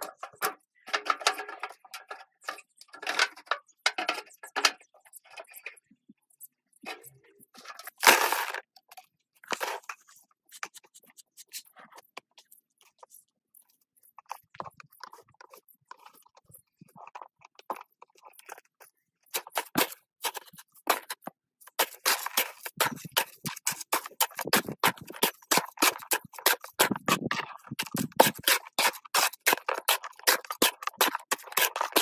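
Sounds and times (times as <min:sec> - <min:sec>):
pipe scraping in metal tin: 0:06.9 - 0:08.6, 0:19.4 - 0:32.0.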